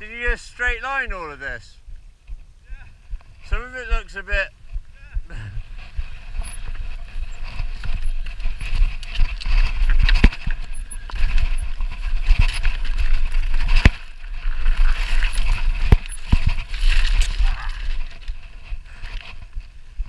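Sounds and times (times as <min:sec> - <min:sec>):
constant low rumble: 0:00.0 - 0:20.0
bike rattling: 0:05.3 - 0:20.0
bike knocking on rocks: 0:07.6 - 0:17.4.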